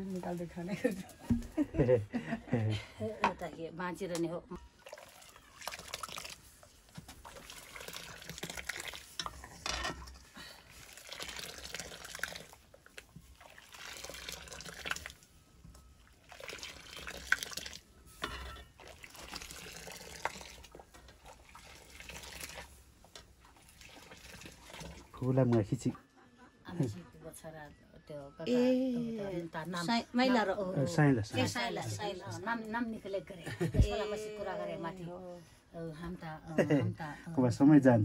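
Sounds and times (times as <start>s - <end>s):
milk pouring into metal pot: 4.8s - 15.4s, 16.0s - 25.5s.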